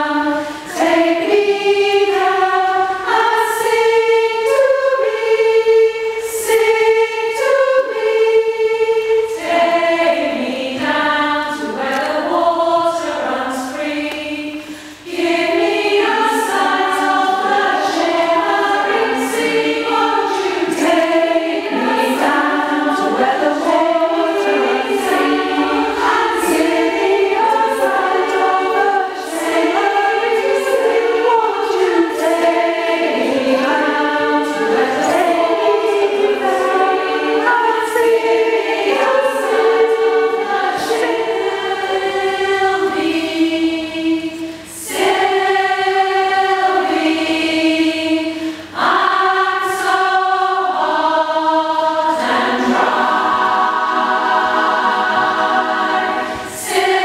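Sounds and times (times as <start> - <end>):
choir singing in parts: 0.0 - 57.0.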